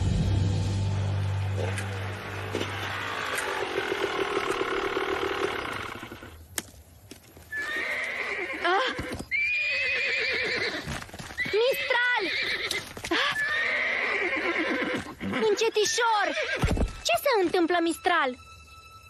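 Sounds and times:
horse neighing: 1.6 - 6.3, 7.5 - 16.7.

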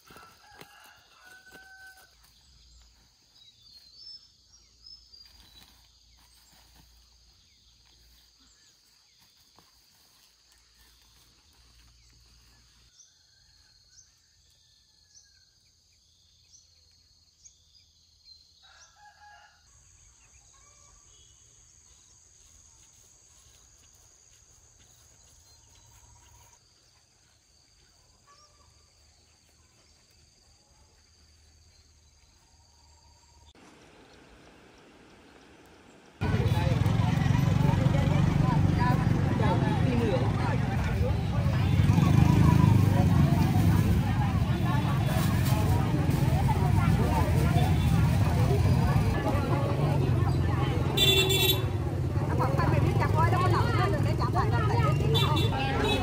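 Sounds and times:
rooster crowing: 0.0 - 2.2.

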